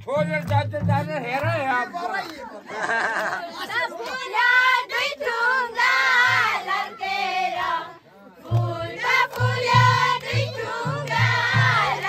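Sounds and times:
low pulsing beat: 0.0s - 1.8s, 8.5s - 12.0s
voices singing: 1.7s - 12.0s.

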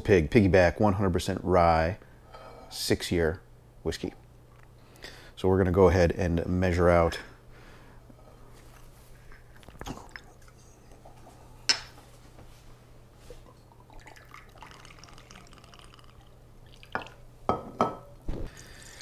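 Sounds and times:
liquid trickling: 13.4s - 17.2s
glass clink: 17.0s - 18.1s.

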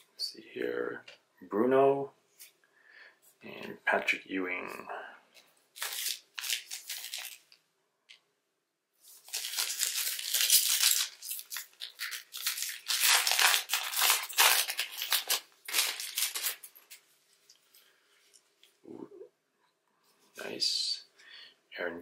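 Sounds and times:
foil wrapper crinkling and tearing: 5.8s - 7.5s, 9.1s - 17.0s.

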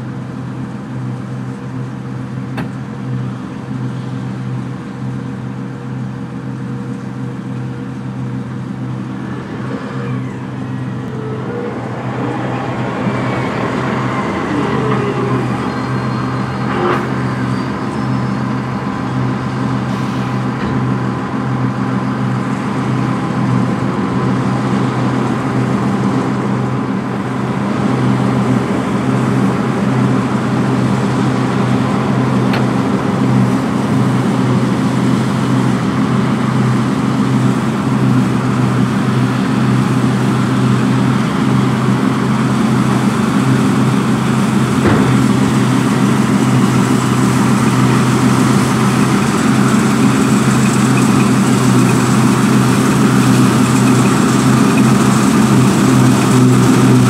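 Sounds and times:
combine harvester engine hum: 0.0s - 57.0s.

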